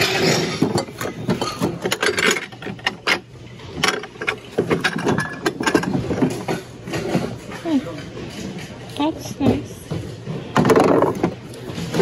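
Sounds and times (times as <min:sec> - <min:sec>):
dishes and glassware clinking: 0:00.0 - 0:08.8.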